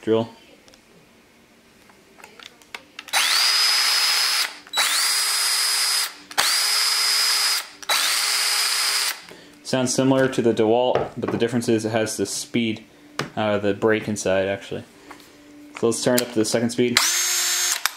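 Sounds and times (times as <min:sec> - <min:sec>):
cordless drill motor whine: 0:03.1 - 0:09.2, 0:17.0 - 0:17.9.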